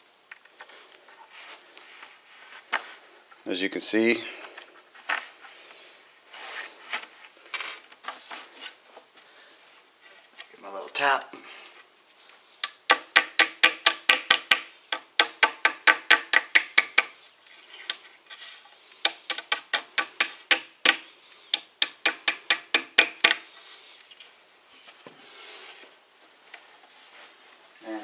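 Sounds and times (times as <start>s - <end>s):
rubber mallet tapping wooden dowels: 12.6s - 17.2s, 19.0s - 23.5s.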